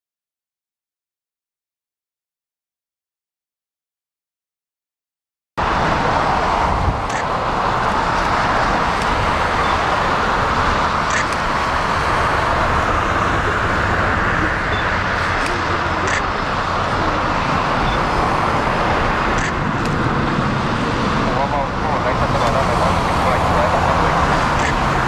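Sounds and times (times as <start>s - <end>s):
jet engine roar: 5.6s - 25.0s.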